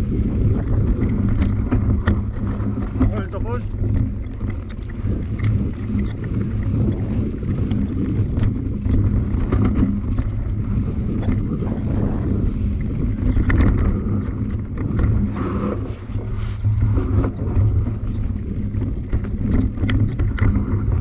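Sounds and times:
wind buffeting microphone: 0.0s - 21.0s
scattered clicks and knocks: 0.6s - 10.5s, 12.8s - 15.3s, 16.7s - 21.0s.

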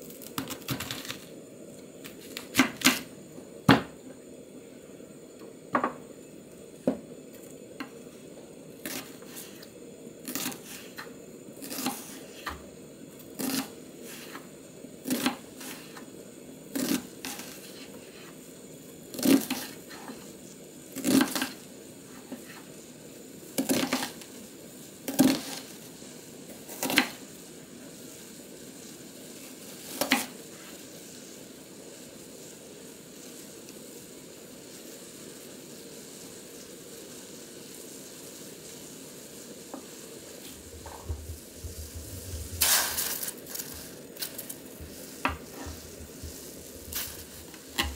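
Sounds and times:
knife slicing onion on board: 2.0s - 3.1s, 8.8s - 9.6s, 10.2s - 12.6s, 13.4s - 14.4s, 15.0s - 16.0s, 16.7s - 18.3s, 21.0s - 21.6s, 23.6s - 24.2s, 25.1s - 25.7s, 29.9s - 30.4s.

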